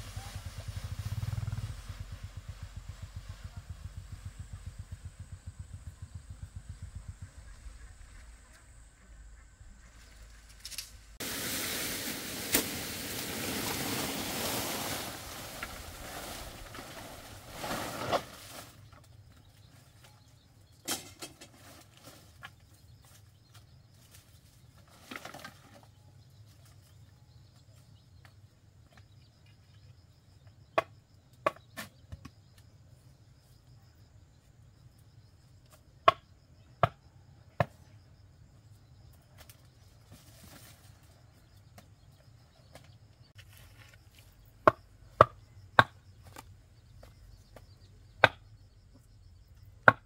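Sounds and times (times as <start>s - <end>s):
loud rustling and scraping: 10.5s - 18.9s.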